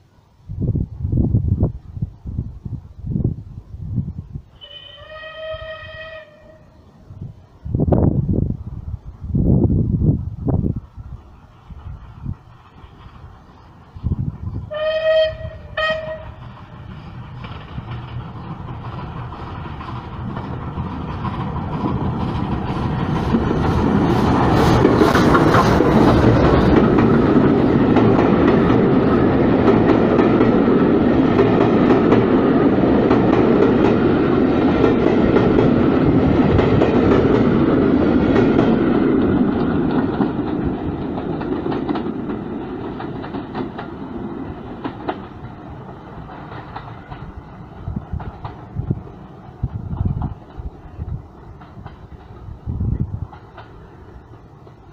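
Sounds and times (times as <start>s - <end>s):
steam whistle: 4.6s - 6.8s, 14.7s - 16.4s
train wheels and rail clatter: 7.9s - 54.9s.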